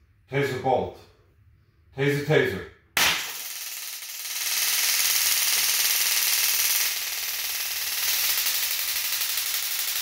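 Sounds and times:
rapid electrical crackle: 3.0 - 10.0.

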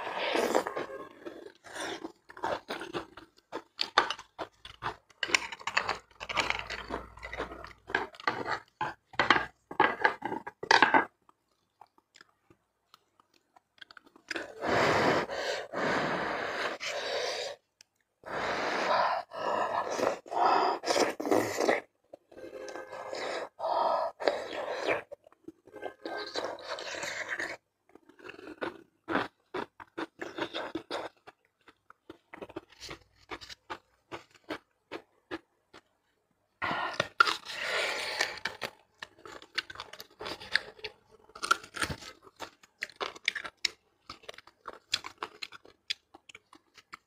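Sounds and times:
wet chewing and lip-smacking: 36.9 - 47.0.

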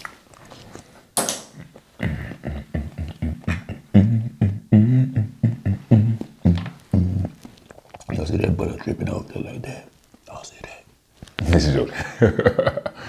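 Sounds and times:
man humming a rhythmic tune: 1.6 - 7.6.

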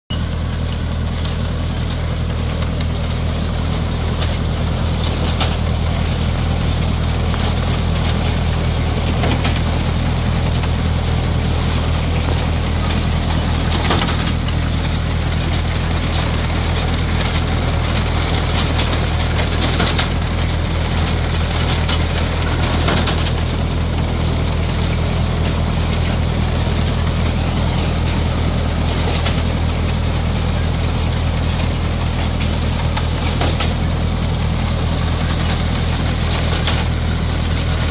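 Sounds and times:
tractor engine running: 0.1 - 37.9.

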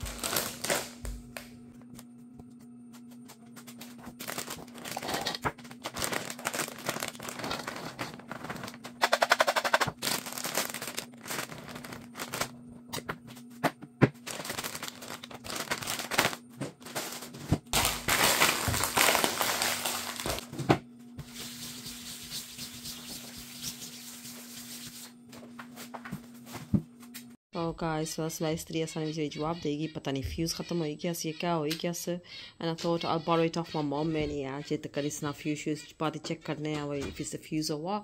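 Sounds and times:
plastic snack packets crinkling: 0.0 - 1.0, 4.1 - 12.6, 14.2 - 17.1, 17.8 - 20.4.

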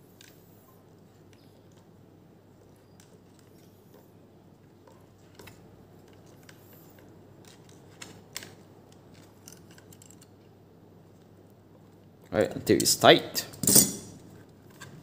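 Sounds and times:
pliers clicking and scraping metal: 4.8 - 10.3, 12.8 - 15.0.

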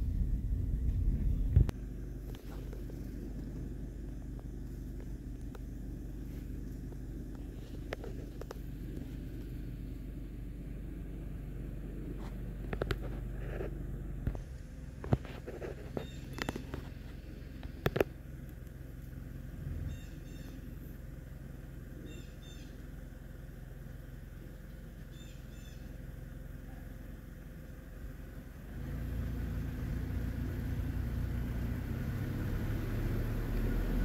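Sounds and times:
vehicle engine rumble: 0.0 - 34.0
high bird chirps: 19.8 - 20.7, 22.0 - 22.8, 25.1 - 25.9.

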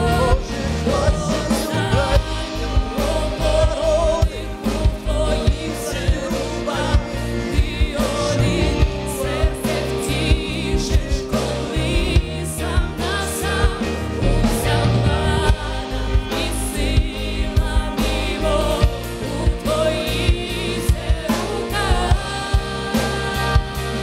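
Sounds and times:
man singing into a microphone: 0.0 - 12.8
instrumental accompaniment with beat: 0.0 - 24.0.

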